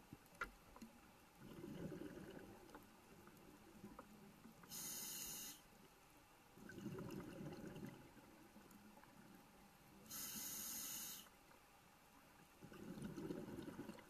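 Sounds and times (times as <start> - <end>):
exhaled bubbles gurgling: 1.4 - 4.0, 6.6 - 9.4, 12.6 - 14.0
regulator inhalation hiss: 4.7 - 5.7, 10.1 - 11.3.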